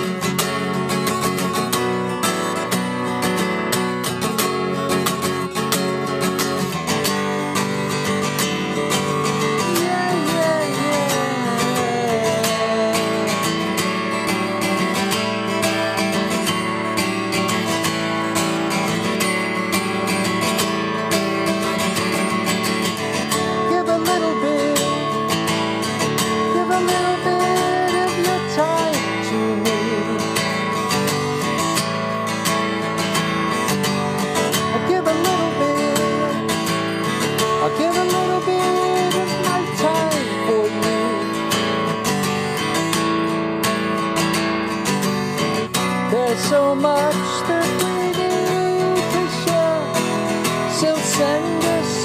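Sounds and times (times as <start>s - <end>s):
acoustic guitar strumming: 0.0s - 52.0s
man singing: 6.8s - 31.8s, 33.7s - 42.8s, 45.7s - 52.0s.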